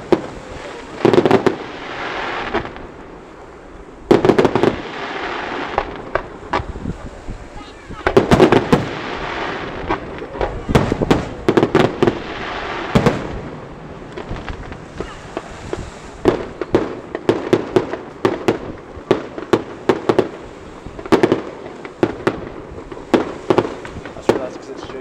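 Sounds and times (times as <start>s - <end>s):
firework shells bursting: 7.9s - 25.0s.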